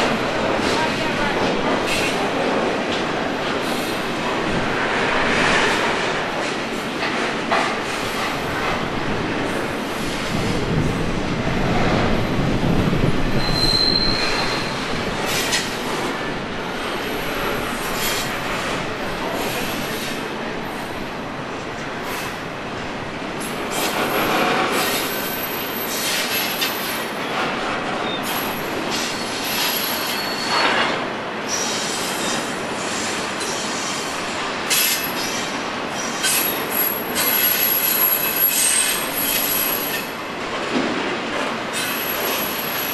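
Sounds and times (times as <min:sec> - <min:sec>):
train wheels rumbling on rail: 0:00.0 - 0:42.9
high-pitched wheel squeals: 0:13.4 - 0:14.8, 0:29.2 - 0:30.6.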